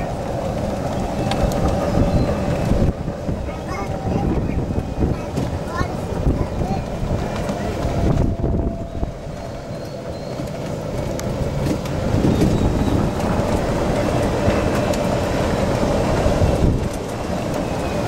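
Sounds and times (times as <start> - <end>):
golf cart tyres rolling: 0.0 - 18.0.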